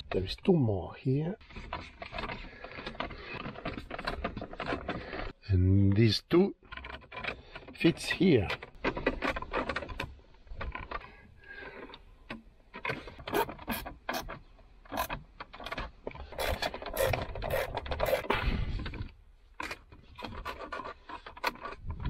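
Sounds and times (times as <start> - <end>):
screwdriver scraping in screws: 1.4 - 5.4, 12.8 - 22.0.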